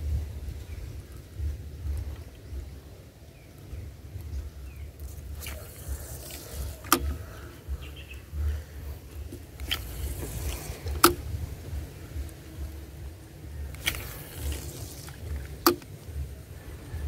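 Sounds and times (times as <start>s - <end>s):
wind and handling rumble: 0.0s - 17.0s
fishing reel clicks: 13.7s - 16.0s.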